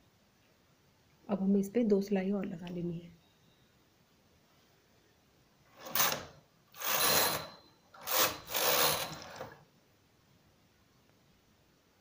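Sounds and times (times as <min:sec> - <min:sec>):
knitting machine carriage rattle: 0:05.8 - 0:09.6.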